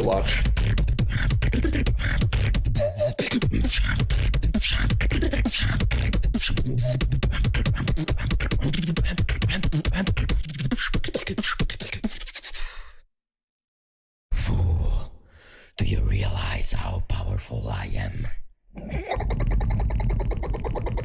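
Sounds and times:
person beatboxing: 0.0 - 12.7, 18.8 - 21.0.

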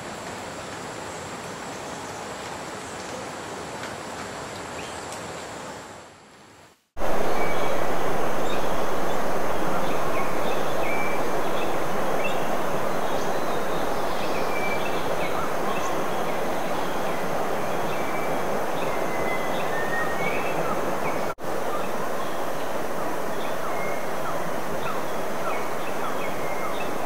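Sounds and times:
high insect whine: 7.0 - 27.0
steady rushing noise: 7.0 - 27.0.

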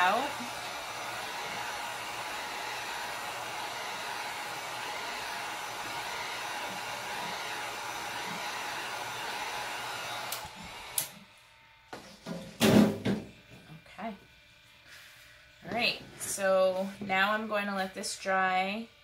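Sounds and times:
heat gun blowing: 0.0 - 11.3.

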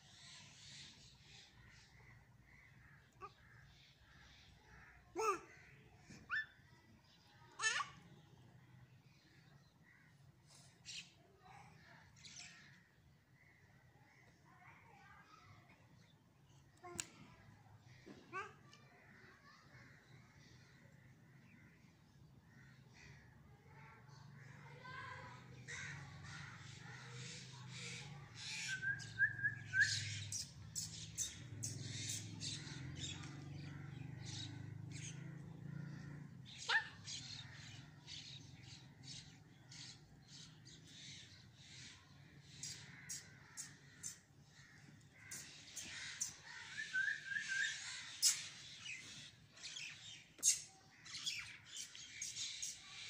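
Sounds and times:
birds chirping: 0.0 - 53.0
sharp bird calls: 25.6 - 53.0.

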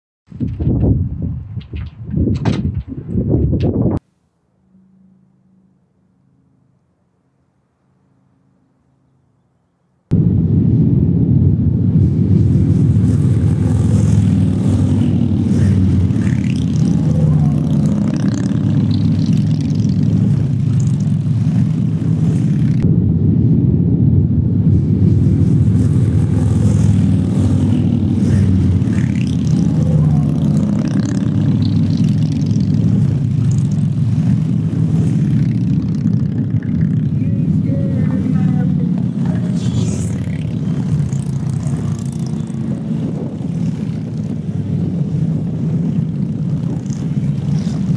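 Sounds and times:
motorcycles rumbling in procession: 11.4 - 22.9, 24.0 - 47.9.

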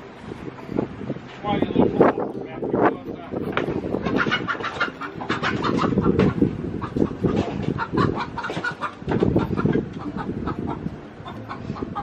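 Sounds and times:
hens clucking: 3.4 - 12.0.

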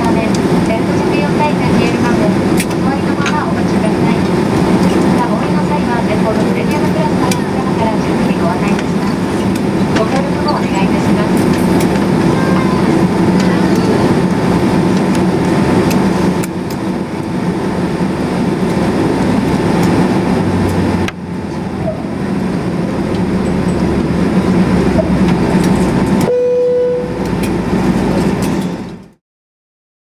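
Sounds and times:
jet engine cabin hum: 0.0 - 29.2
short steady tone: 26.2 - 27.3.

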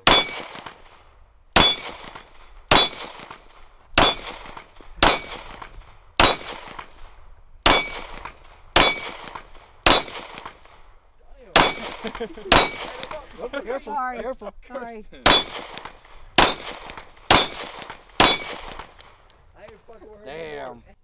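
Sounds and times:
metallic ring of steel targets: 0.0 - 0.6, 1.6 - 3.1, 4.0 - 4.4, 5.0 - 5.6, 6.2 - 6.6, 7.7 - 8.2, 8.8 - 10.2, 11.6 - 13.1, 15.3 - 15.7, 16.4 - 18.6
pistol shots: 0.0 - 10.8, 11.5 - 13.2, 15.2 - 19.2.

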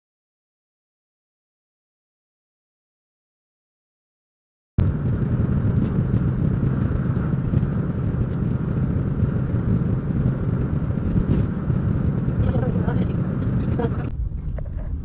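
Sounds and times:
car cabin road and engine rumble: 4.8 - 15.0.

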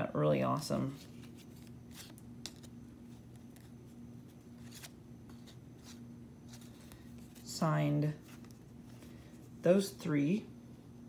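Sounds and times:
steady low hum: 0.0 - 11.0
cardboard cards being handled: 0.8 - 9.5.

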